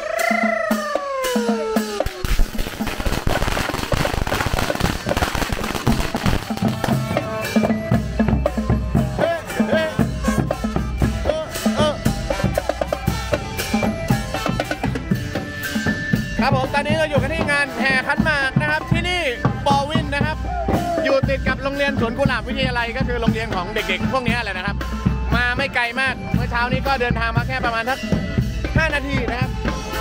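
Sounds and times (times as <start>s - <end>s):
bass drums and percussion: 0.0s - 30.0s
horns playing melody: 9.0s - 15.2s.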